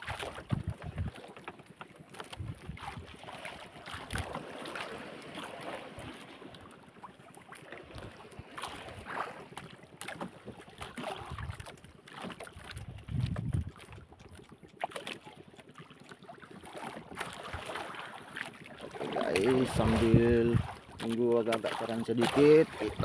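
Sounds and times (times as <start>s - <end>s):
water sloshing against boat hull: 0.0s - 23.0s
wind on microphone: 0.4s - 1.2s, 2.3s - 3.1s, 11.1s - 11.6s, 12.7s - 13.8s, 19.5s - 20.8s.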